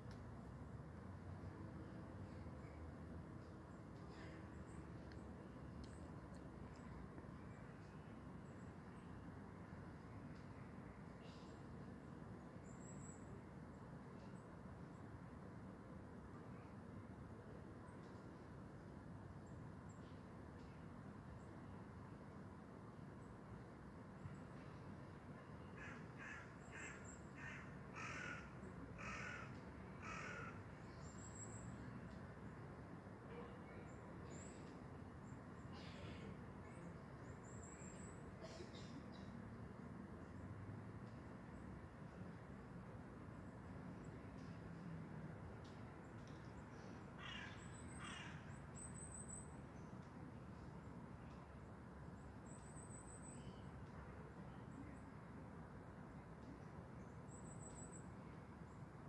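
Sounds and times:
faint outdoor background: 0.0s - 59.0s
bird cawing: 25.8s - 30.6s, 47.2s - 48.4s.

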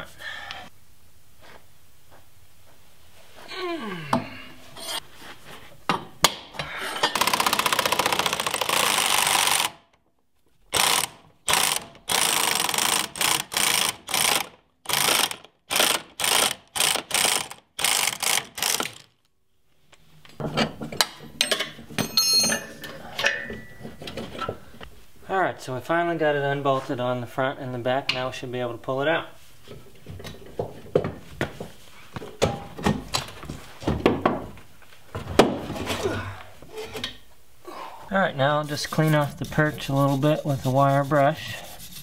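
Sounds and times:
socket ratchet clicking: 10.7s - 19.1s.

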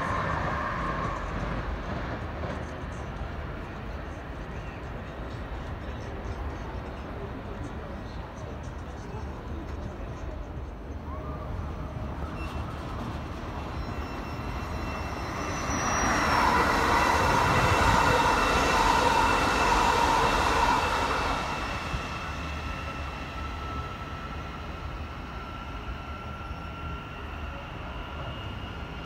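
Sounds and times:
train passing with rumble: 0.0s - 29.0s.

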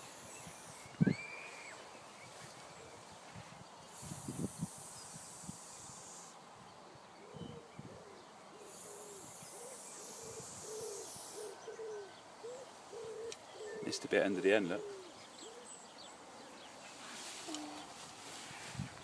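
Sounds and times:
spray paint can hissing: 3.9s - 6.3s, 8.8s - 11.4s.

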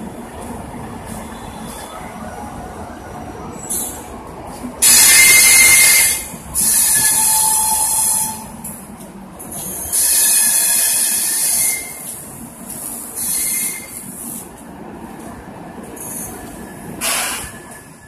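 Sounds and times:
train air hissing: 9.6s - 14.6s, 16.0s - 17.7s.

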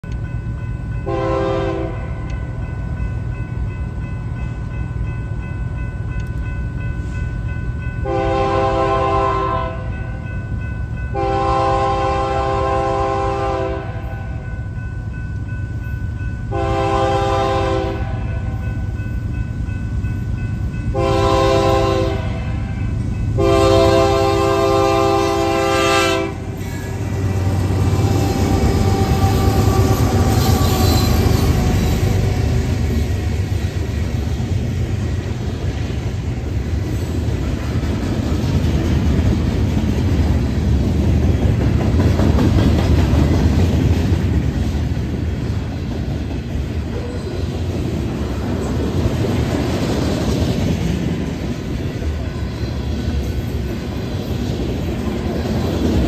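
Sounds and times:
locomotive air horn blasts: 1.1s - 2.3s, 8.0s - 10.0s, 11.1s - 14.4s, 16.5s - 18.5s, 20.9s - 22.8s, 23.4s - 32.0s.

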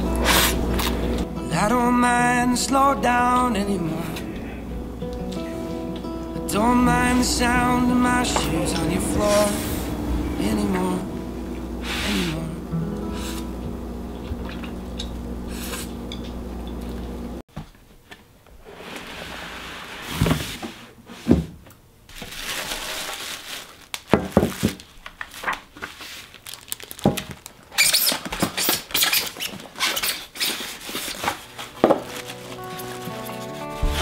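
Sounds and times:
background music: 0.0s - 13.6s, 31.5s - 34.0s
plastic wrapping crinkling: 22.1s - 34.0s.

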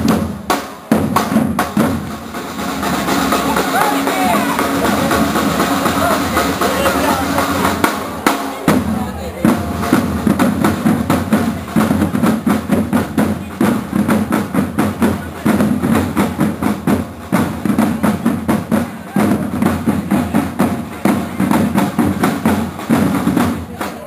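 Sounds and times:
marching drums beating: 0.0s - 24.0s.

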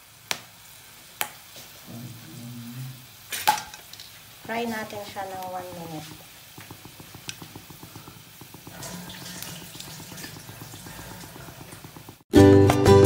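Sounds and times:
spices crackling in hot oil: 0.0s - 12.3s
music: 12.3s - 13.0s.

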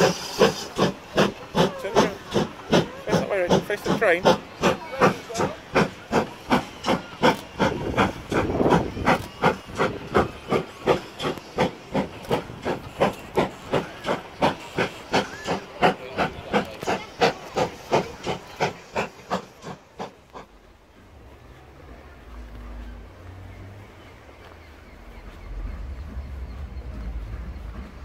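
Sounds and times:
steam locomotive chuffing: 0.0s - 28.0s.

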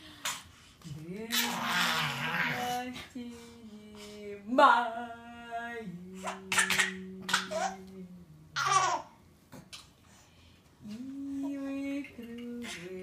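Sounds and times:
woman humming: 0.9s - 3.0s, 5.6s - 8.6s, 10.8s - 13.0s.

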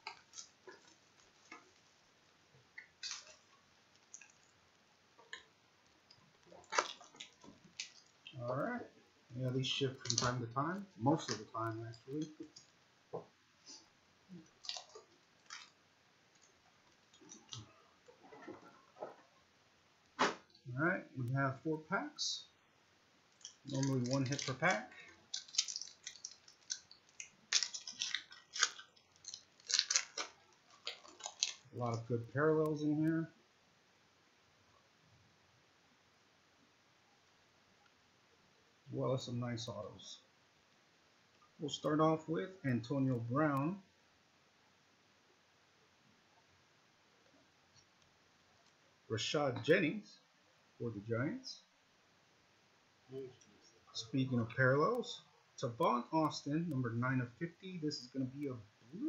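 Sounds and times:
foil pack tearing and crinkling: 23.4s - 31.7s.

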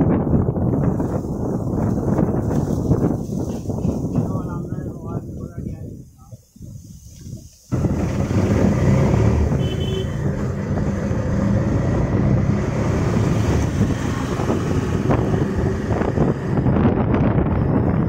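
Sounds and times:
wind buffeting microphone: 0.0s - 18.0s
car passing: 7.7s - 18.0s.

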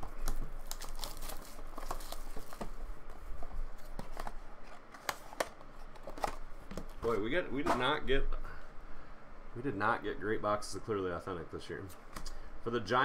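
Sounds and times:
wrapper crinkling and tearing: 0.0s - 2.7s.

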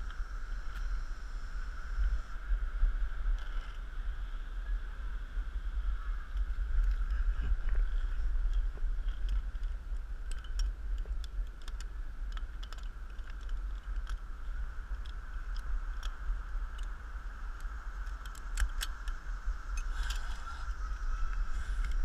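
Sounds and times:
light clicks and ticks: 6.3s - 22.0s
high-pitched drone: 19.7s - 22.0s.

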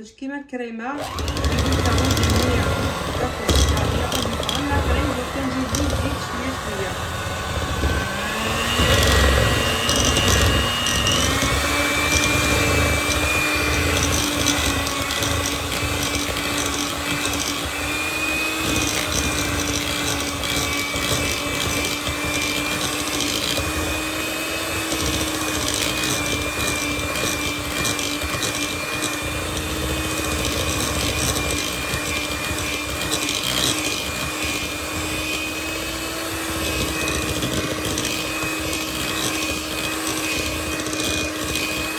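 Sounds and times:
electric hand mixer whining: 1.0s - 41.9s.

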